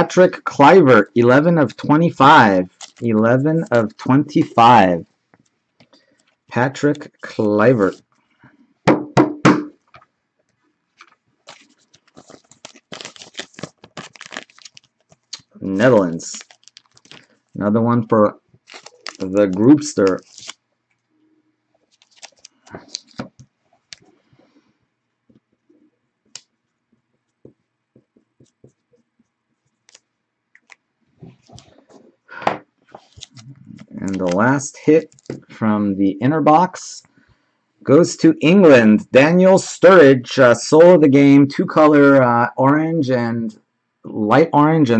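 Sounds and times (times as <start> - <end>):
plastic sleeve crinkling: 1.6 - 4.8, 10.9 - 21.0, 21.8 - 24.1, 32.8 - 35.6.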